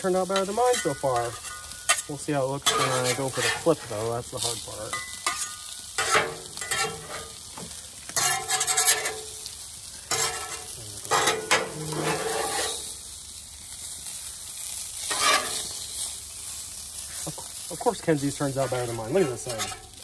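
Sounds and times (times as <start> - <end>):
food sizzling on a griddle: 0.0 - 20.0
metal spatula scraping: 0.1 - 7.5, 8.2 - 9.4, 10.1 - 13.0, 15.0 - 16.1, 18.5 - 20.0.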